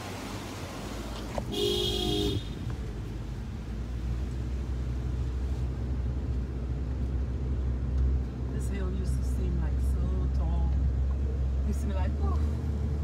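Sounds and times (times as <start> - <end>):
car engine and road rumble: 0.0 - 13.0
car horn toot: 1.5 - 2.6.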